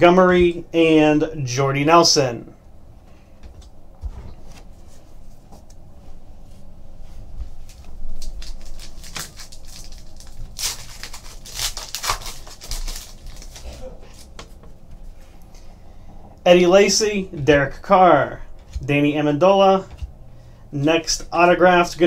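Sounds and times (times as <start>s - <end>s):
foil wrapper crinkling and tearing: 7.7s - 14.3s.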